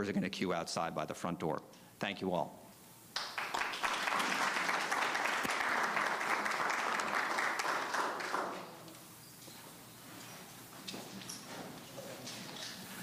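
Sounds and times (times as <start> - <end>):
audience applauding: 3.2 - 8.8.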